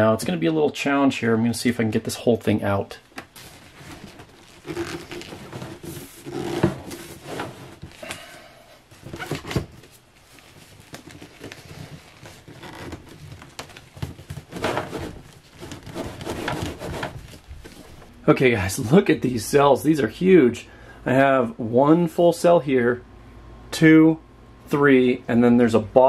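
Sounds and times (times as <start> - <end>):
scraping creaking and knocking: 10.9 - 18.1.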